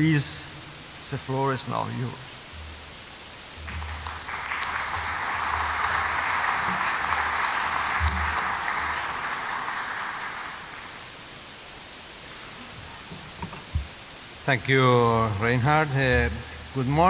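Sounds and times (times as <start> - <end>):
audience applauding: 3.6 - 11.3.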